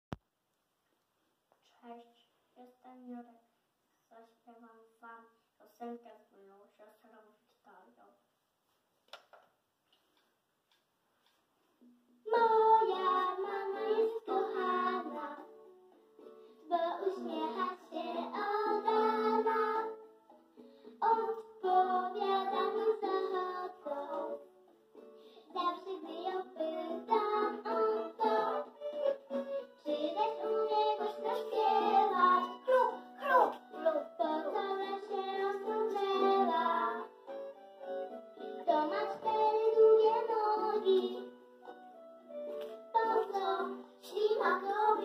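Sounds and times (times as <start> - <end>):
children singing: 12.3 - 15.5, 16.7 - 20.0, 21.0 - 24.4, 25.5 - 37.2, 38.6 - 41.3, 42.9 - 45.0.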